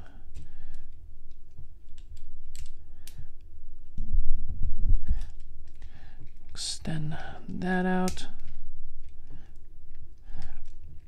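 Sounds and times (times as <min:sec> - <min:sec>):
plastic toy parts clicking: 0:00.3 - 0:03.2, 0:08.0 - 0:09.2.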